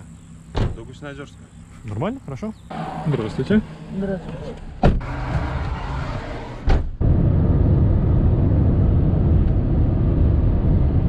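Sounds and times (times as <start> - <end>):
road and engine rumble inside car: 0.0 - 11.0
thump: 0.5 - 0.9, 4.8 - 5.7, 6.6 - 7.0.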